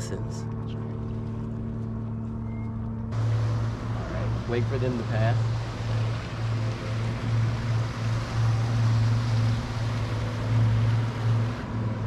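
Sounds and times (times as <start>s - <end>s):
boat motor humming: 0.0s - 12.0s
wind: 0.0s - 12.0s
rushing water: 3.1s - 12.0s.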